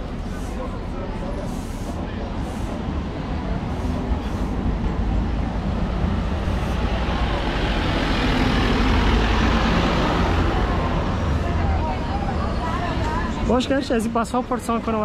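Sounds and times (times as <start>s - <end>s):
street traffic engine rumble: 0.0s - 15.0s.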